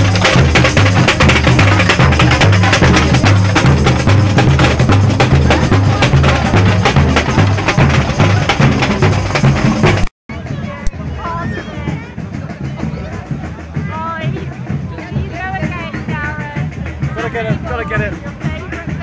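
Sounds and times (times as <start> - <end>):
snare drums: 0.0 - 10.1, 10.8 - 19.0
bass drums: 0.0 - 19.0.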